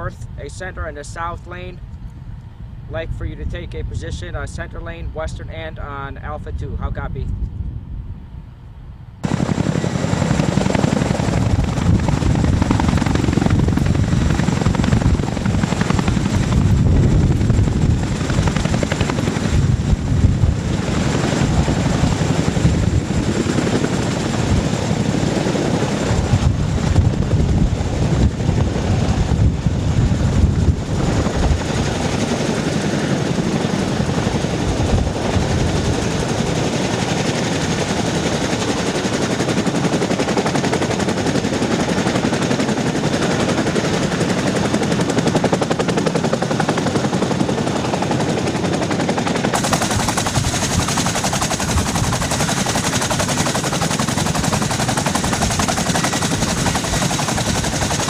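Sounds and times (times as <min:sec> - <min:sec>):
helicopter rotor beat: 0:00.0 - 0:58.0
high turbine whine: 0:00.0 - 0:58.0.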